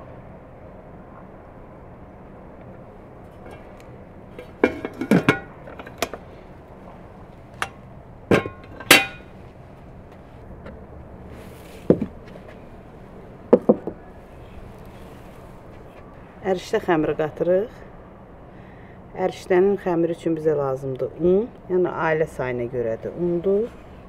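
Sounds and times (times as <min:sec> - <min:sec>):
ceramic dishes clinking: 0:04.4 - 0:06.1, 0:07.6 - 0:09.3.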